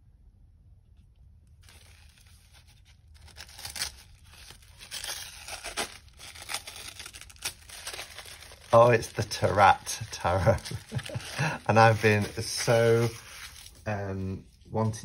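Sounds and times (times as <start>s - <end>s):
paper wrapping tearing and crinkling: 1.6s - 15.0s.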